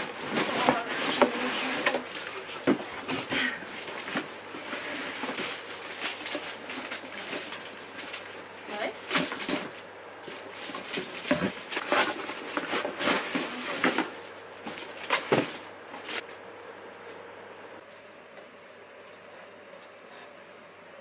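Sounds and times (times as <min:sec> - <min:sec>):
paper and plastic rustling: 0:00.0 - 0:16.3
lamp parts knocking cardboard box: 0:09.0 - 0:15.6.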